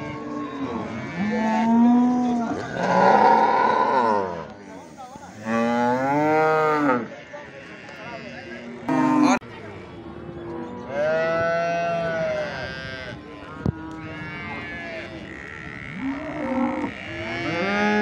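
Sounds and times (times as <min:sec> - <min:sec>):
cows mooing: 0:00.0 - 0:04.5, 0:08.2 - 0:09.4, 0:10.7 - 0:18.0.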